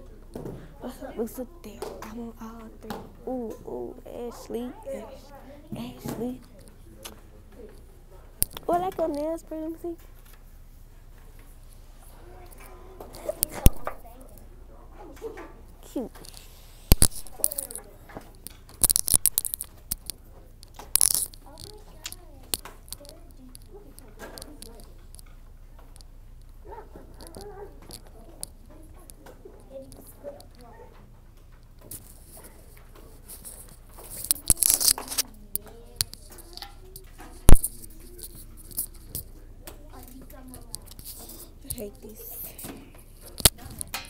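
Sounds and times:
rustling against phone microphone: 15.9s - 18.1s, 31.8s - 43.9s.

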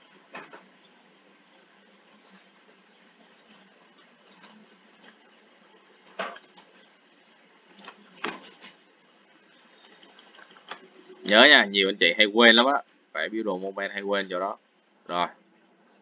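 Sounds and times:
computer mouse clicks: 0.3s - 0.7s, 3.2s - 5.2s, 6.0s - 6.9s, 7.6s - 8.8s, 9.7s - 11.3s.

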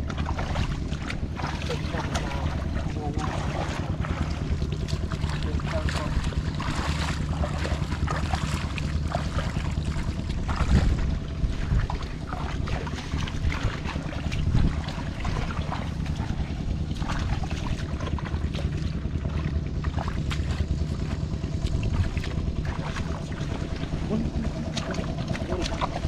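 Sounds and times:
wind buffeting microphone: 0.0s - 19.9s
footsteps squelching through mud: 0.0s - 26.0s
low rumble: 0.0s - 26.0s.

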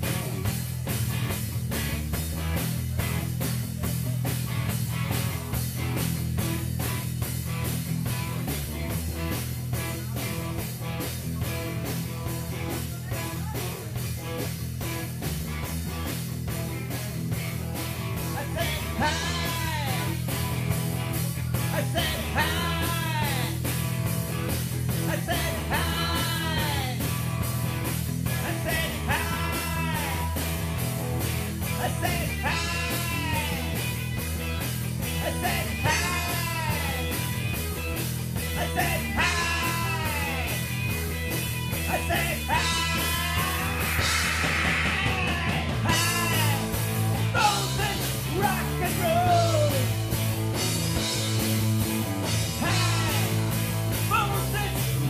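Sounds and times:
rock band playing: 0.0s - 55.0s.

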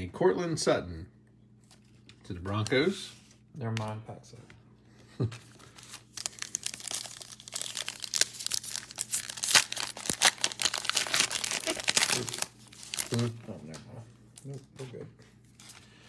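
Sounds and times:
foil wrapper tearing and crinkling: 5.5s - 13.3s.

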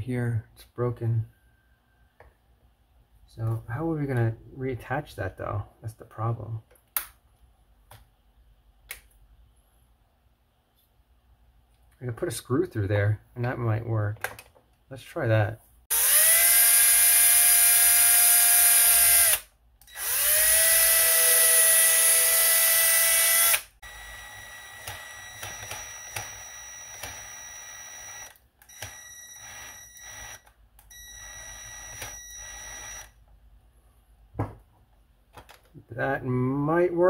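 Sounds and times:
cordless drill driving screw: 15.9s - 33.1s
small tool high whine: 15.9s - 33.2s.

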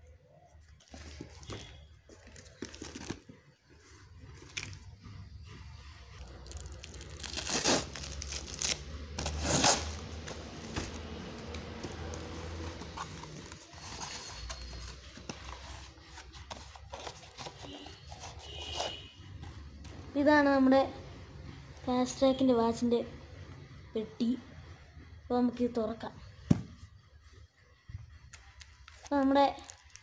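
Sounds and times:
plastic mailer ripping and crinkling: 6.2s - 14.4s.

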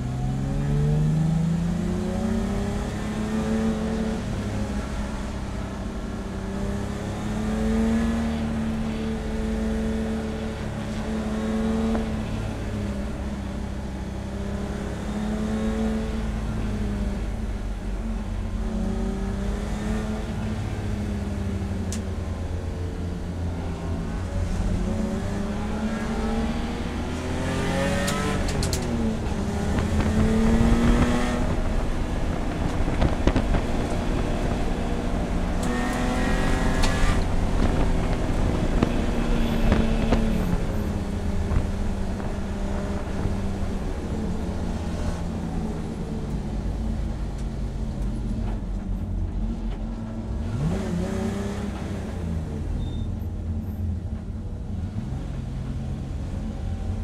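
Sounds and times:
race car engine revving: 23.6s - 46.6s, 50.3s - 52.7s.

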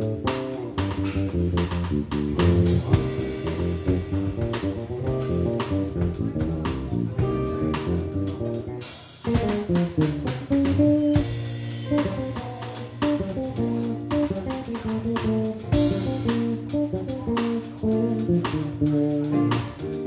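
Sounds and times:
drum kit with cymbals: 0.0s - 20.0s
electric guitar lines: 0.0s - 20.0s
live jazz-funk band: 0.0s - 20.0s.

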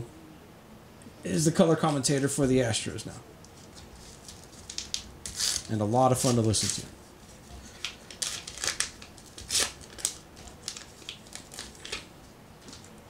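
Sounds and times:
plastic wrapper crinkling and tearing: 3.6s - 6.9s, 7.6s - 12.1s.

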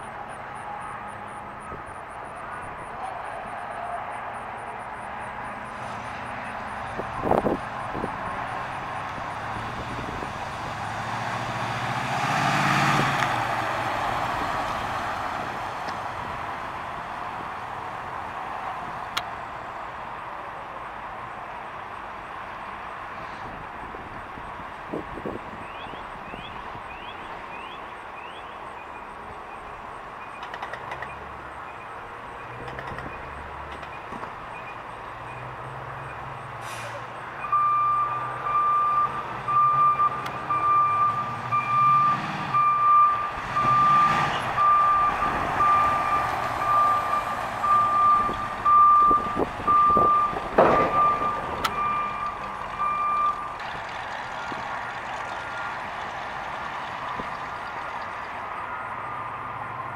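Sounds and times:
reversing alarm beeping: 37.4s - 53.6s
truck engine running: 42.5s - 59.2s.

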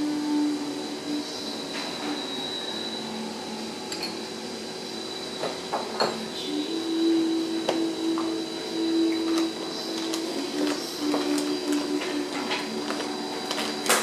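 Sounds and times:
steady hum: 0.0s - 14.0s
porcelain cup clinking: 6.0s - 6.2s.

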